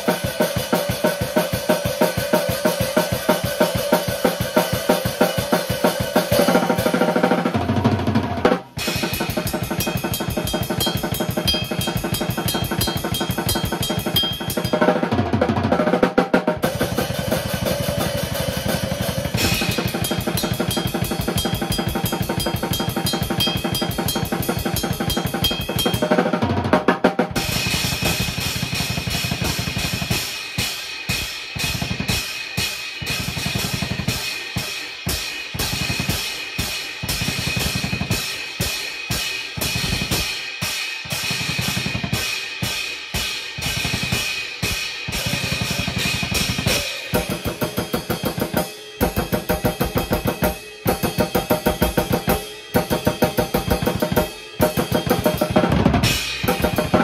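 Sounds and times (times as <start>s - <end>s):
drum kit playing: 0.0s - 57.0s
cymbal ringing: 8.9s - 14.9s, 17.0s - 26.2s, 40.2s - 50.9s.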